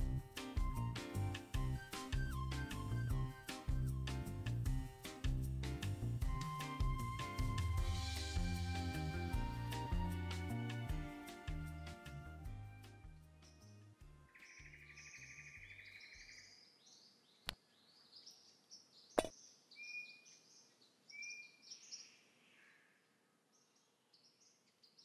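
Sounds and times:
soft background music: 0:00.0 - 0:16.2
birds chirping with buzzy trill: 0:13.3 - 0:22.8.

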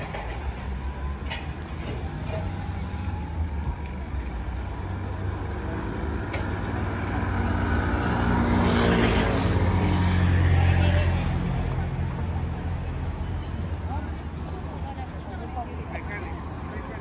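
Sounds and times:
street noise: 0:00.0 - 0:17.0.

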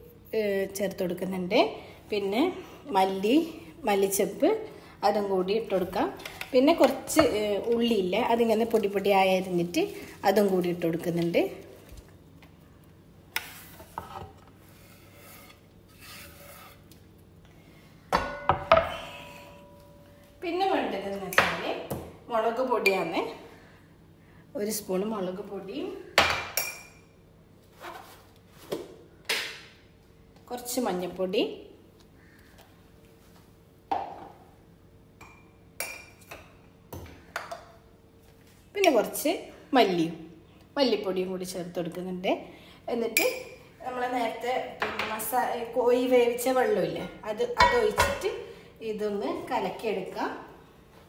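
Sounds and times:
knife scraping on cutting board: 0:13.5 - 0:17.0.

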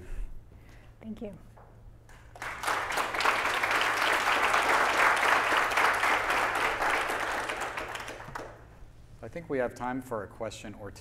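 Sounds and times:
audience applauding: 0:02.2 - 0:08.7.

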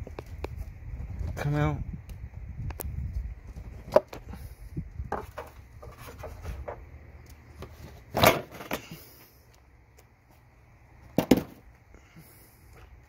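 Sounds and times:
sharp knocks on engine parts: 0:11.2 - 0:11.6.

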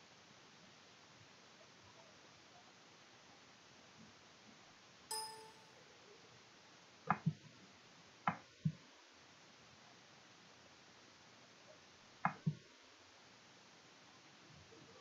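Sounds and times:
bright ping: 0:05.1 - 0:05.6
mouse button clicks: 0:05.1 - 0:05.6.

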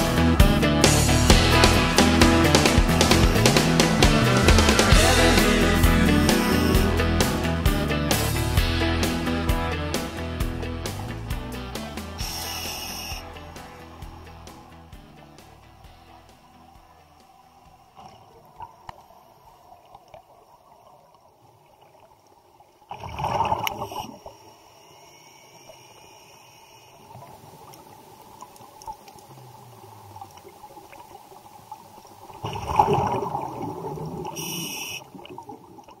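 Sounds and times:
muffled underwater wash: 0:10.4 - 0:36.0
faint clicks: 0:25.5 - 0:31.2
diver exhaling bubbles: 0:32.4 - 0:35.7.

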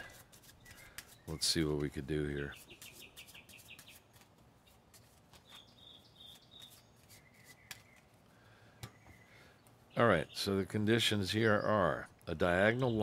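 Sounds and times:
birds chirping faintly: 0:00.0 - 0:13.0
cards clicking and sliding: 0:06.3 - 0:08.1.

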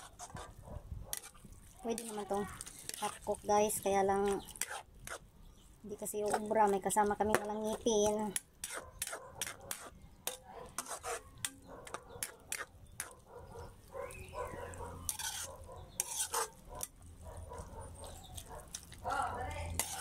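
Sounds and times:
metal spoon scraping a wok: 0:00.0 - 0:05.3, 0:07.4 - 0:13.1, 0:14.8 - 0:17.0, 0:19.7 - 0:20.0.

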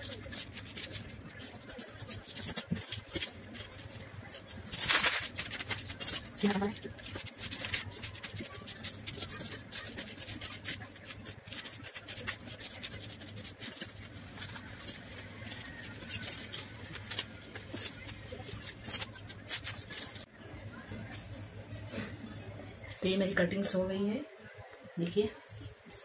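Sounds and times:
paper rustling: 0:00.0 - 0:20.3
scissors snipping newspaper: 0:00.0 - 0:20.3.

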